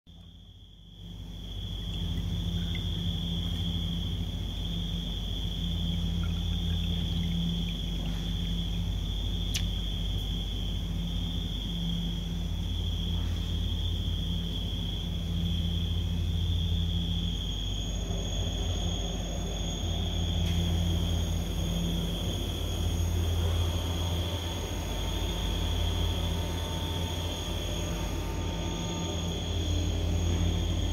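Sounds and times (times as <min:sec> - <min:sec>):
low machine hum: 0:00.1 - 0:30.9
faint sharp click: 0:09.5 - 0:09.8.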